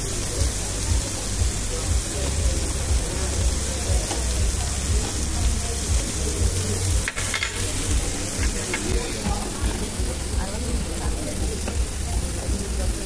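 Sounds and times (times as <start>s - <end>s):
vegetables sizzling on grill plate: 0.0s - 13.0s
tongs stirring food: 4.0s - 12.1s.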